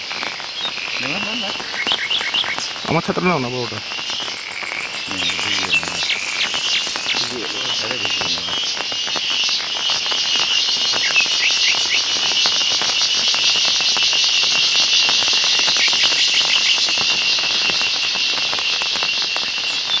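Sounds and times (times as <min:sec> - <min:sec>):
chorus of insects and frogs: 0:00.0 - 0:20.0
short chirping calls: 0:00.6 - 0:09.2.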